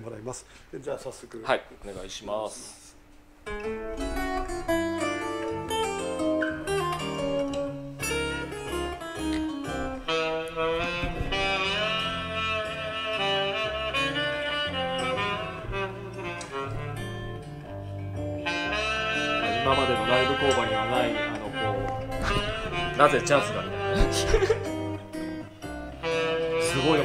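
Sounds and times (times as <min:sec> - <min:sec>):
jazz with saxophone melody: 0:02.9 - 0:27.0.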